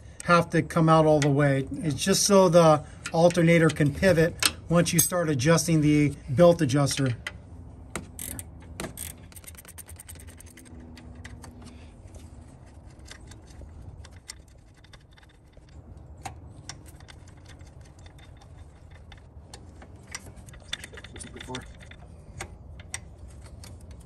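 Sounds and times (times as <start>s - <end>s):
wrench clicking on metal bolt: 8.2s - 11.0s.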